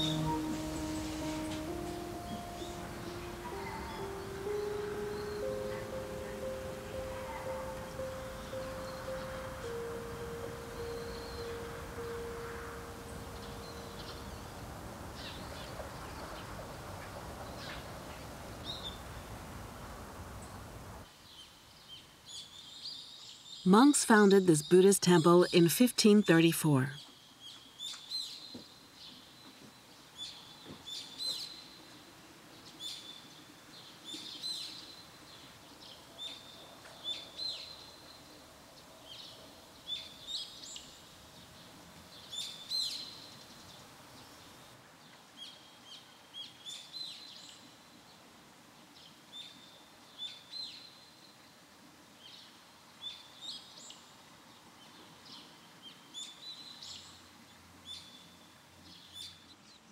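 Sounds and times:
small birds chirping: 0.0s - 19.1s
faint background noise: 0.0s - 59.9s.

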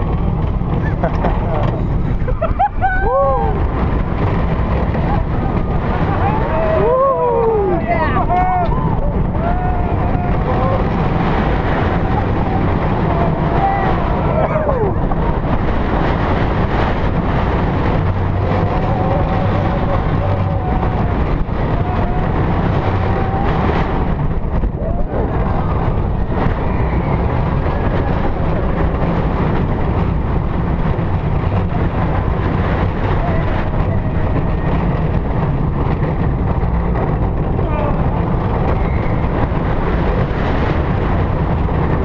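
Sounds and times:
roller coaster wheels rumbling: 0.0s - 42.0s
wind on microphone: 0.0s - 42.0s.

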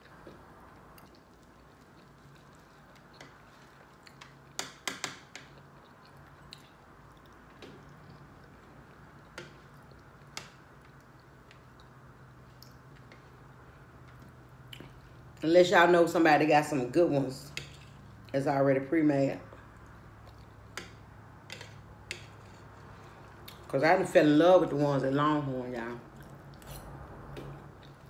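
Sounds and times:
quiet chewing: 0.0s - 4.6s, 5.3s - 15.3s, 19.6s - 23.7s, 26.1s - 28.0s.

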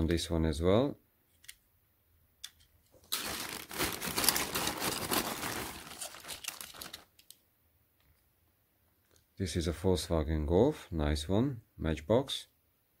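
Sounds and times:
plastic bag crinkling: 3.0s - 7.4s.

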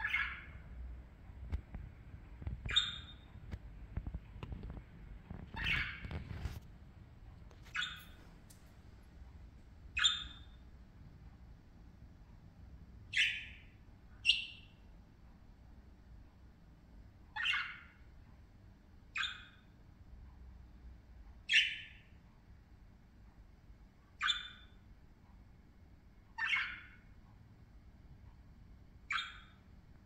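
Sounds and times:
budgerigars chirping: 0.0s - 0.6s, 2.7s - 3.3s, 5.5s - 6.5s, 7.7s - 8.2s, 10.0s - 10.5s, 13.1s - 14.8s, 17.4s - 18.0s, 19.2s - 19.6s, 21.5s - 22.1s, 24.2s - 24.7s, 26.4s - 27.0s, 29.1s - 29.6s.

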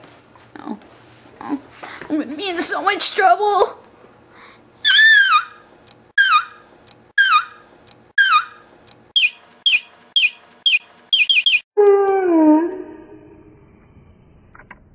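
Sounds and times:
high-pitched falling wailing cries: 4.8s - 5.6s, 10.7s - 13.5s.

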